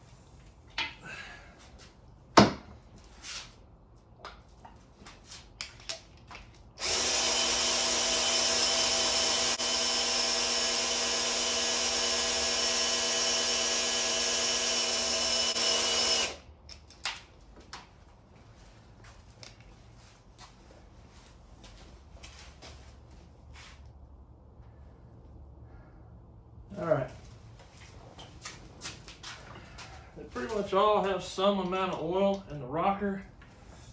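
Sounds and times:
cordless drill spinning: 6.8s - 16.5s.

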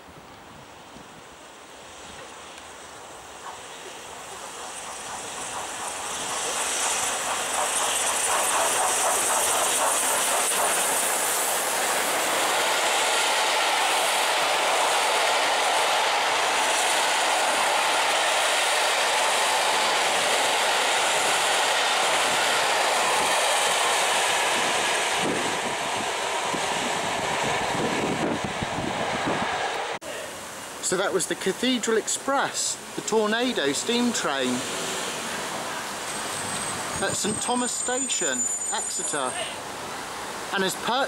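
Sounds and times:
steam locomotive passing: 0.5s - 41.0s
coach wheels clattering over rail joints: 3.4s - 12.7s.

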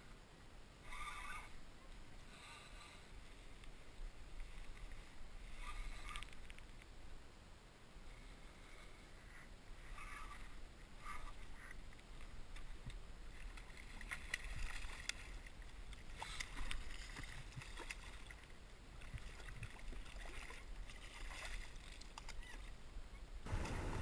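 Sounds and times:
fish thrashing and splashing: 13.4s - 18.5s, 19.1s - 22.5s.

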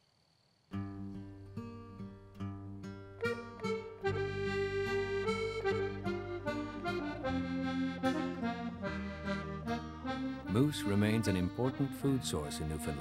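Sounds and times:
accordion music: 2.8s - 13.0s.

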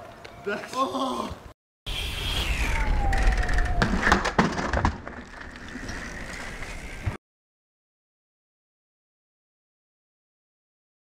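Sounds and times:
bike scraping on concrete: 1.9s - 7.2s
tyres rolling with thin whine: 2.2s - 7.2s.

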